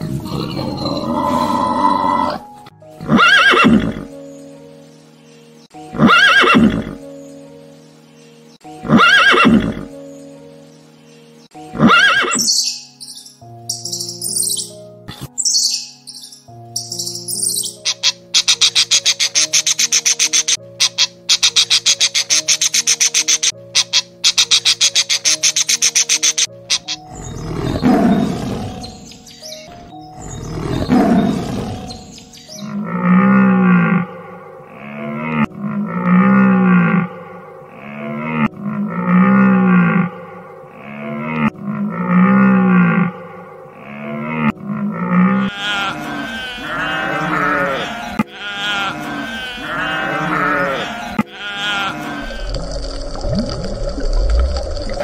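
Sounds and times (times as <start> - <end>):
tiger roaring: 0.0 - 2.4, 27.3 - 28.9, 30.3 - 32.0, 32.7 - 53.0
sheep bleating: 45.2 - 52.6.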